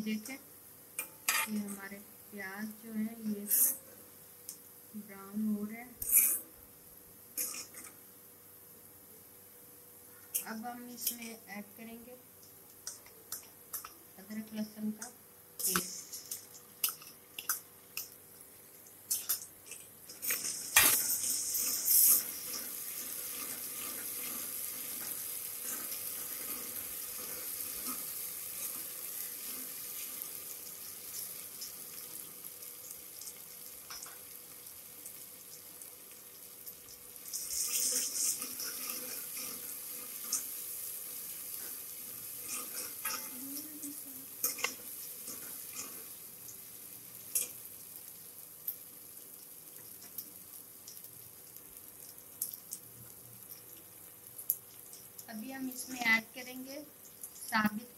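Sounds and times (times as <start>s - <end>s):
paste sizzling in hot oil: 6.0s - 6.5s, 15.4s - 57.9s.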